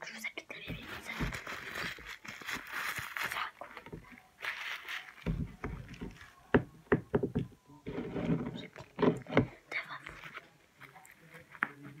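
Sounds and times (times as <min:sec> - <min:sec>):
tissue rustling and rubbing: 0:00.8 - 0:05.3.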